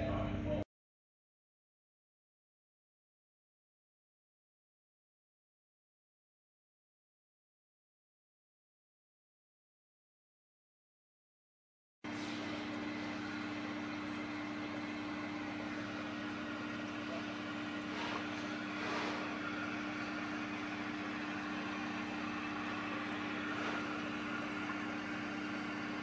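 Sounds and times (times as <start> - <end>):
aquarium equipment humming: 12.1 - 26.0.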